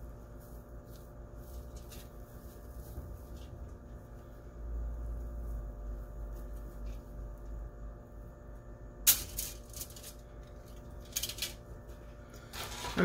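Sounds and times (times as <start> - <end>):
steady low hum: 0.0 - 13.0
aluminium foil crinkling: 0.3 - 3.6, 9.2 - 11.6.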